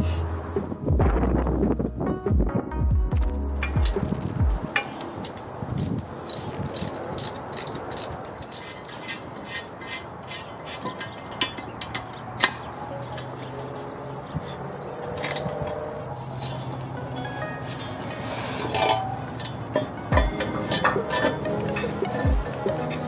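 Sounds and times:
ratchet wrench clicking: 4.7s - 12.6s, 18.6s - 23.0s.

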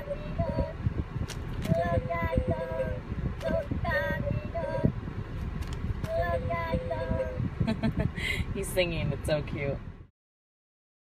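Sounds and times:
toy voice singing through small speaker: 0.0s - 0.8s, 1.6s - 4.9s, 6.1s - 7.4s.

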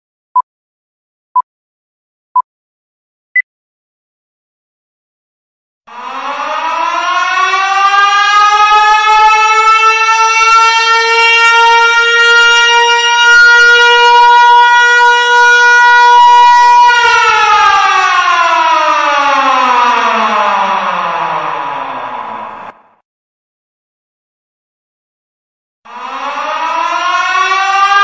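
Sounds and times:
siren winding up and down: 5.9s - 22.8s, 25.9s - 28.0s.

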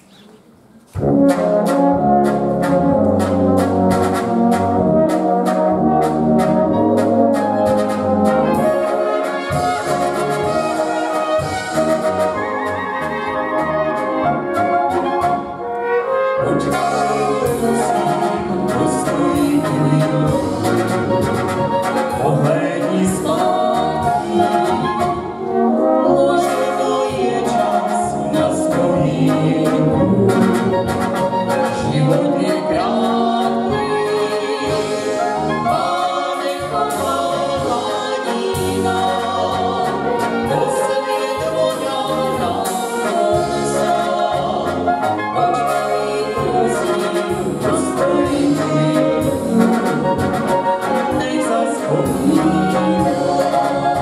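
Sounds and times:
brass band playing: 0.9s - 54.0s
people singing: 16.4s - 54.0s.

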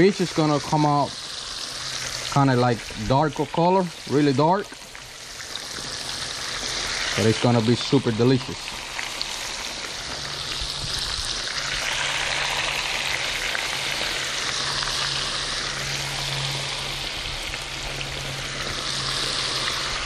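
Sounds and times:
fish deep-frying in oil: 0.0s - 20.0s.

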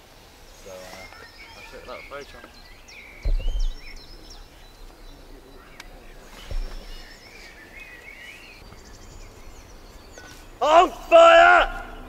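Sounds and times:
birds chirping and warbling: 0.0s - 12.0s
open-air background noise: 0.0s - 12.0s
dull low thump: 3.1s - 7.2s.

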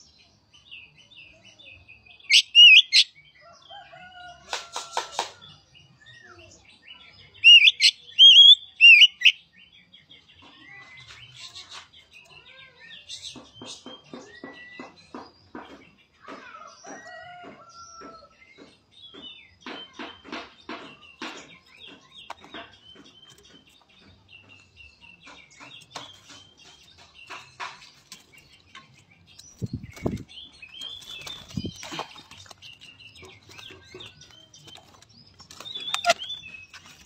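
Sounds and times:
bird singing chirps and clicks: 2.2s - 37.0s
loud bird call: 7.4s - 9.3s.

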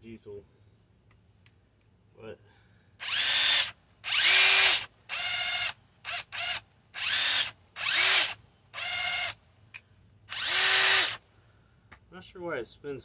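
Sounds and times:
impact wrench bursts: 3.0s - 9.4s, 10.3s - 11.2s.

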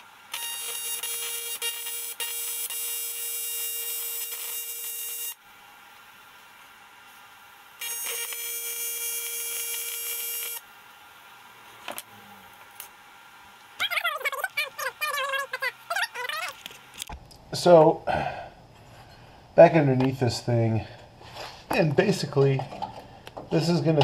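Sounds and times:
welding arc buzzing: 0.0s - 5.5s, 7.1s - 10.8s.

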